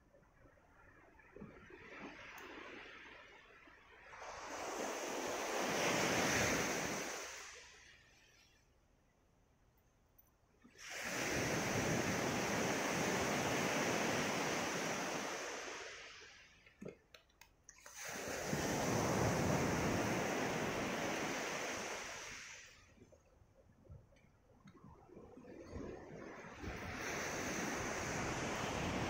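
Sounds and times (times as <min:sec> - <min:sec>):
waves breaking on gravel beach: 0:01.8 - 0:08.2, 0:10.8 - 0:16.6, 0:17.8 - 0:22.9.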